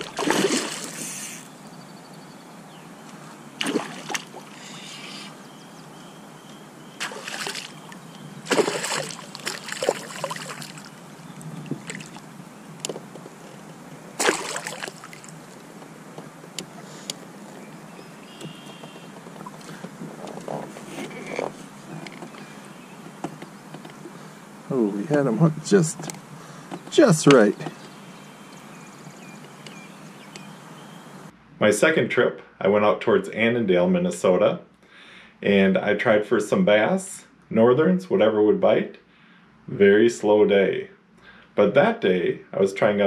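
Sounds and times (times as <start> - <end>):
fish thrashing and splashing: 0.0 - 1.2, 3.6 - 4.8, 7.0 - 12.3, 14.1 - 15.8
water lapping: 0.0 - 1.4, 3.6 - 23.2.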